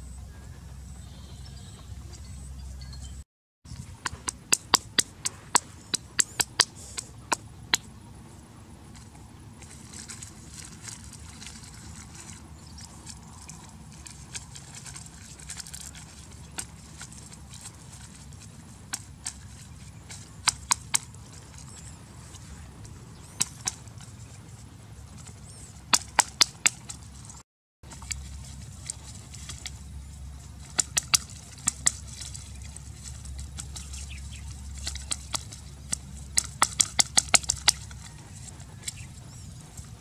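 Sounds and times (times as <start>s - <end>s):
low outdoor rumble: 0.0s - 40.0s
twigs clicking and snapping: 8.9s - 40.0s.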